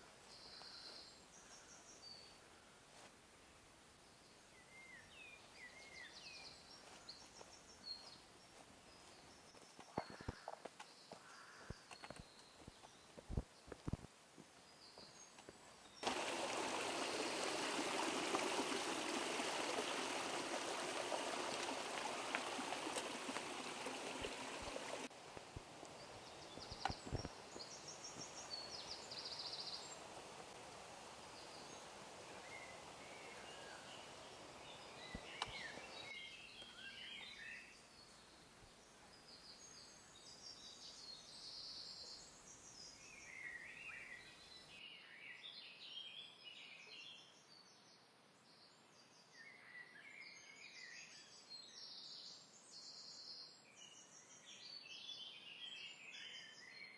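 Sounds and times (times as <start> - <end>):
birds chirping: 4.3 - 14.0, 14.6 - 25.1, 25.9 - 30.2, 31.3 - 44.7
stream splashing over rocks: 15.9 - 25.8.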